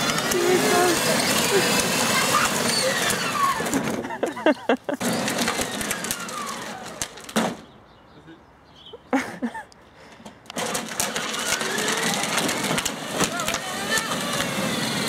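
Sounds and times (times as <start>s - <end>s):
toy car electric motors whining: 0.0s - 7.4s, 10.5s - 15.0s
plastic wheels rattling on asphalt: 0.0s - 7.8s, 10.2s - 15.0s.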